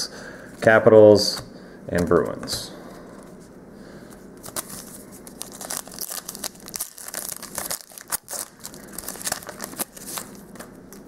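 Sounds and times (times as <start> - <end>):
foil wrapper tearing and crinkling: 4.4 - 10.7.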